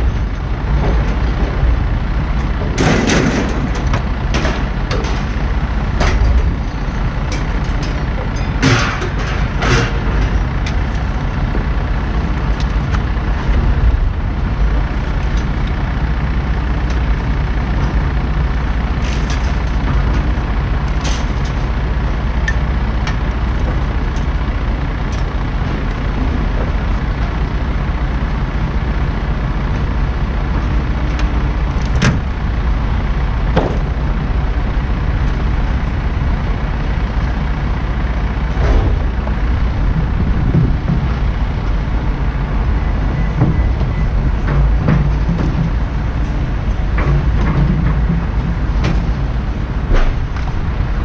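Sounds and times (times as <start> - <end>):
low engine rumble: 0.0 - 51.0
scrap metal clanking: 2.4 - 11.2.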